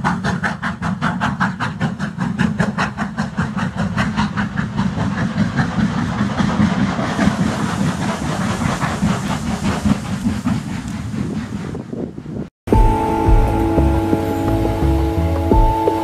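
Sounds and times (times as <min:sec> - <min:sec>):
steam locomotive exhaust beats: 0:00.0 - 0:16.0
low rumble: 0:12.7 - 0:16.0.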